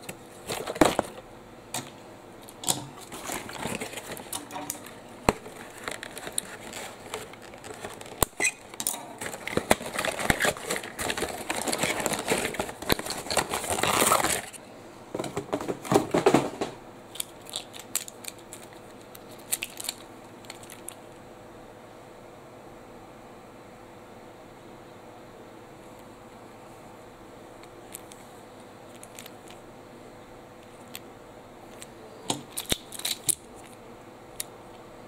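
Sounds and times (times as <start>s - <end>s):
cardboard scraping and crinkling: 3.0s - 14.6s.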